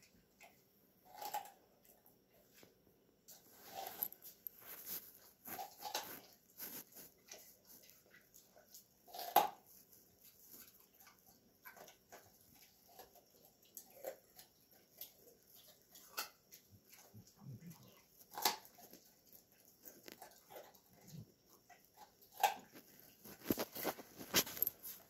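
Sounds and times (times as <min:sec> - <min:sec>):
dog crunching carrot: 0:00.3 - 0:02.4, 0:03.3 - 0:25.0.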